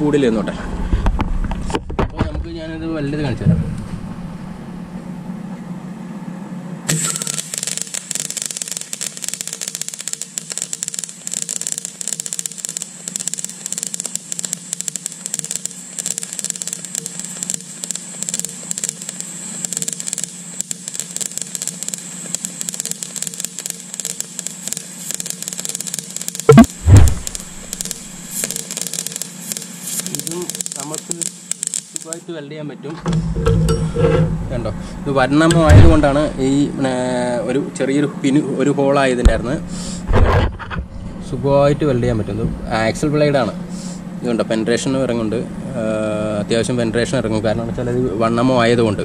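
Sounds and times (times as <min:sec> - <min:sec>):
welder humming: 0:06.9 - 0:32.3
welding arc crackling: 0:06.9 - 0:32.3
loud knocks: 0:35.6 - 0:36.0.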